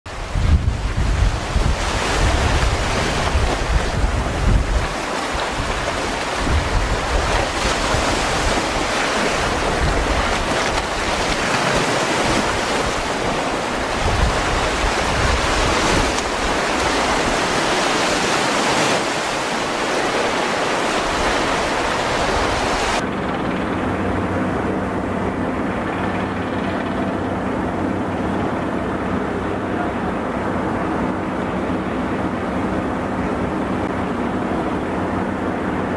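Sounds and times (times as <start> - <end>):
waves on choppy sea: 0.1 - 23.0
wind buffeting microphone: 0.1 - 35.9.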